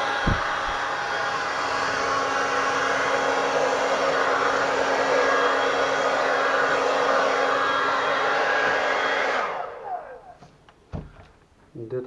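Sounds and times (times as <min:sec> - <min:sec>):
hair dryer blowing: 0:00.0 - 0:10.7
short low thump: 0:00.2 - 0:00.8, 0:10.9 - 0:11.3.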